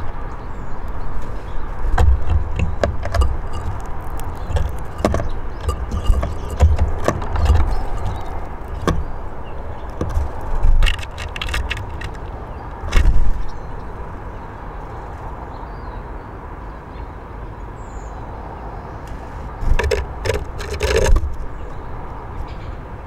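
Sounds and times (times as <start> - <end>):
distant traffic rumble: 0.0 - 23.0
birds knocking on wooden feeder: 1.8 - 13.5, 19.6 - 21.7.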